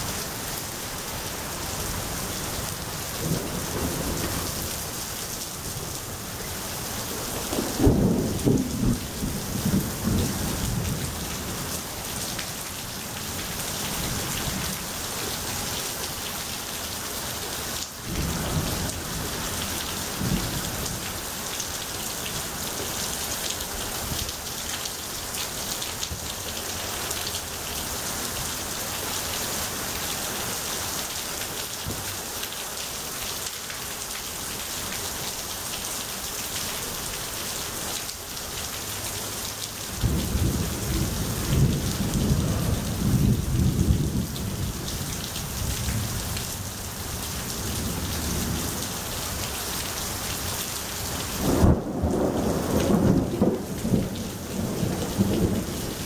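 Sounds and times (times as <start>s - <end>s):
heavy rain pouring: 0.0s - 56.0s
thunder rumbling: 7.4s - 11.2s, 51.4s - 56.0s.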